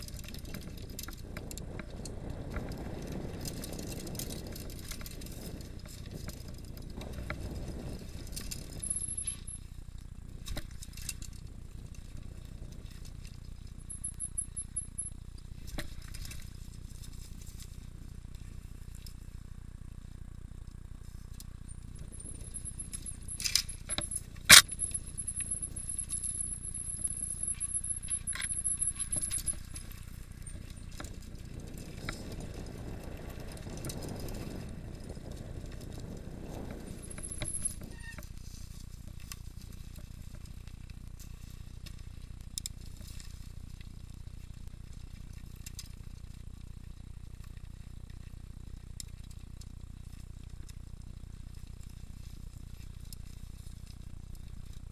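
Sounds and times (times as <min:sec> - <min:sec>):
mountain bike rattling: 0:00.0 - 0:54.9
tyres rolling noise: 0:21.9 - 0:42.1.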